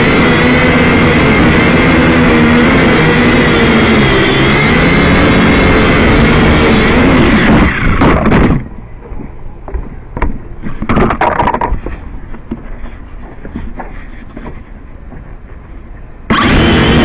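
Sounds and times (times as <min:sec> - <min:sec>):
drone propellers whirring: 0:00.0 - 0:17.0
knocks and rattles: 0:08.0 - 0:12.7.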